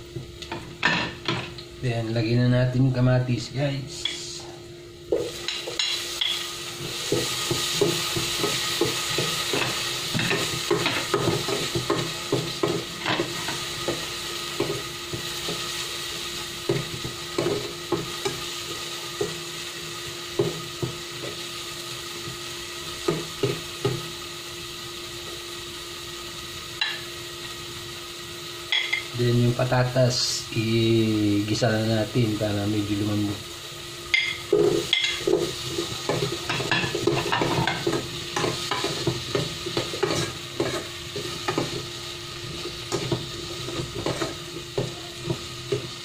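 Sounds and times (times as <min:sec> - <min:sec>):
tomatoes sizzling in oil: 0:00.0 - 0:46.0.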